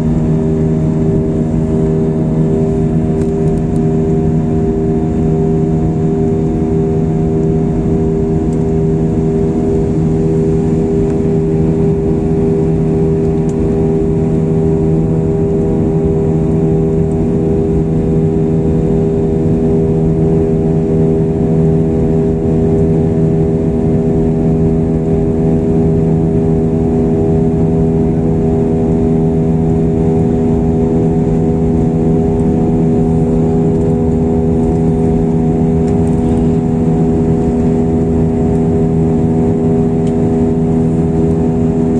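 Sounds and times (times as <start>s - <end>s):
jet engines droning in cabin: 0.0s - 41.9s.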